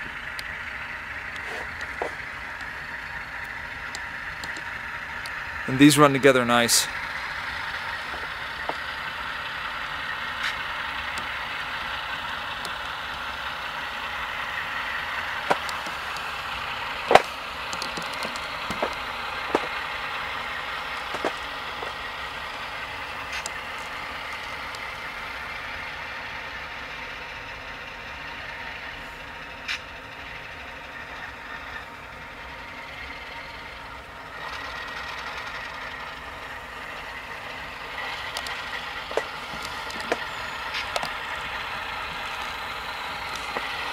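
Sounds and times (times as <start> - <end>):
diesel engine hum through small speakers: 0.0 - 43.9
sharp clicks: 1.3 - 5.4, 15.4 - 16.4, 17.1 - 19.9, 23.3 - 24.9, 37.9 - 43.9.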